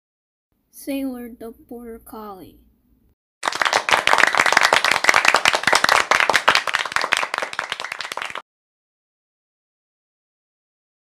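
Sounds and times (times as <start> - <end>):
applause: 3.4 - 8.5.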